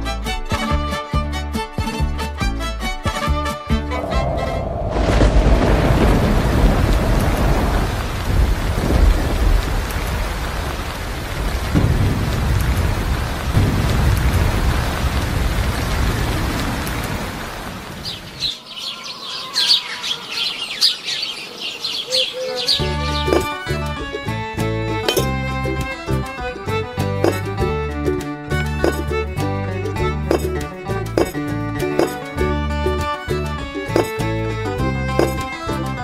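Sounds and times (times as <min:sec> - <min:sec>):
heavy rain: 0:03.8 - 0:30.6
low rolling thunder: 0:03.9 - 0:18.1
birds chirping: 0:15.7 - 0:25.3.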